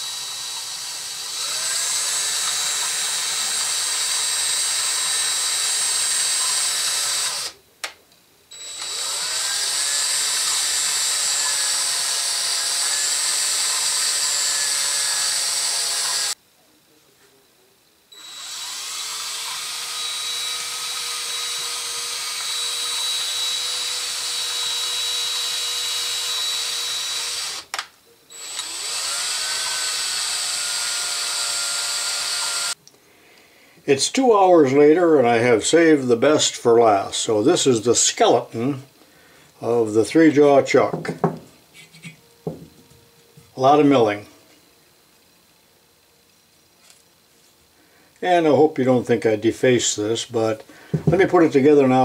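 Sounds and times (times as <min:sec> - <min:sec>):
electric drill motor whine: 0:00.0 - 0:07.6, 0:08.5 - 0:16.4, 0:18.1 - 0:32.8.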